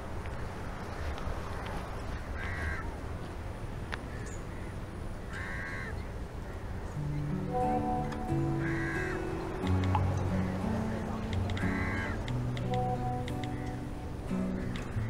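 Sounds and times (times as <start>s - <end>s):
crow cawing: 2.2s - 2.9s, 4.1s - 6.6s, 8.4s - 9.6s, 10.4s - 12.4s, 13.4s - 15.0s.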